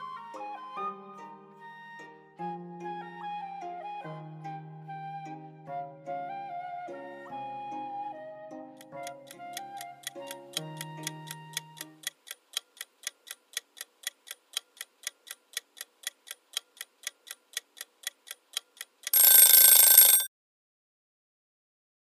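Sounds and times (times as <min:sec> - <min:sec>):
light background tune: 0:00.0 - 0:12.1
clock ticking: 0:08.8 - 0:20.3
alarm bell ringing: 0:19.1 - 0:20.3.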